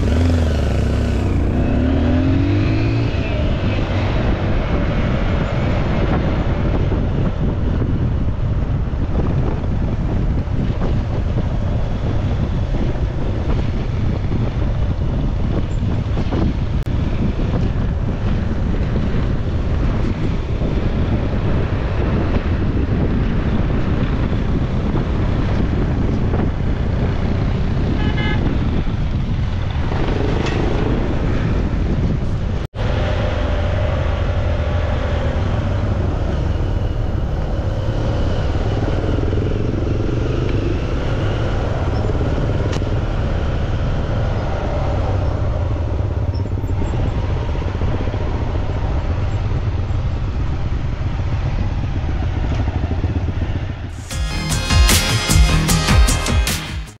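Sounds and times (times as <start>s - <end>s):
motorcycle engine running: 0.0s - 2.8s
wind buffeting microphone: 0.0s - 54.0s.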